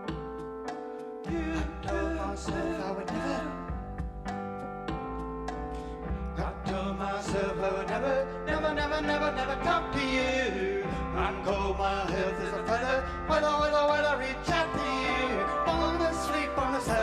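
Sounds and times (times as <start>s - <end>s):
keyboards and synthesizers: 0.0s - 17.0s
person singing: 1.3s - 3.8s, 6.4s - 17.0s
steady low bass: 1.3s - 17.0s.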